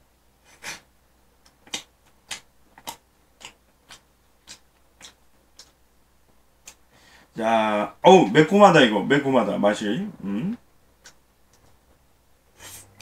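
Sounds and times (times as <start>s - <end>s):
person chewing with mouth clicks: 1.4s - 5.8s.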